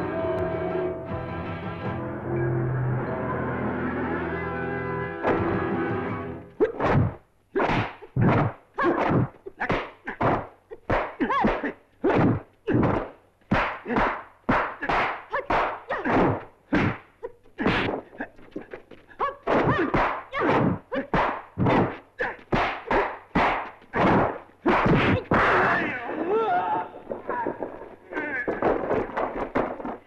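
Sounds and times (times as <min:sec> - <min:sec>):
sharp slapping punch thwacks: 0:06.6 - 0:17.0, 0:19.4 - 0:25.5.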